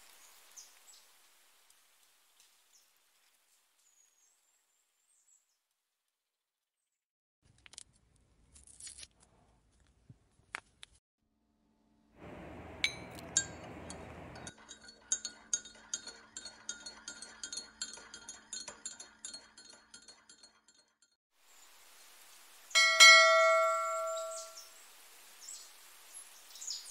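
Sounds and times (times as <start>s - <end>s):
spoon clinking against cup: 12.2s - 20.9s, 22.8s - 24.6s
notification bell chime: 22.8s - 24.6s.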